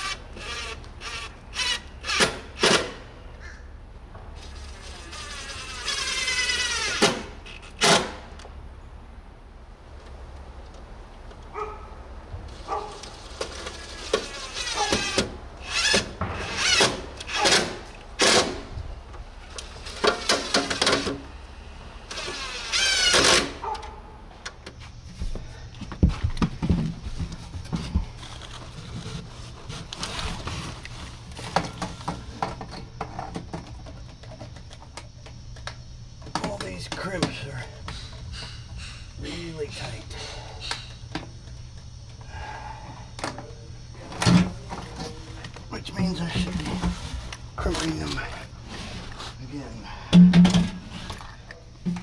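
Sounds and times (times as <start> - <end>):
cordless drill whining: 0.0 - 2.4.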